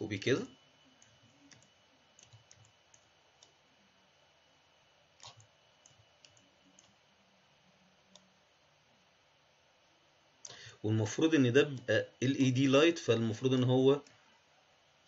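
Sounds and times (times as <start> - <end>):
computer mouse clicks: 1.0 - 3.6, 5.2 - 7.0.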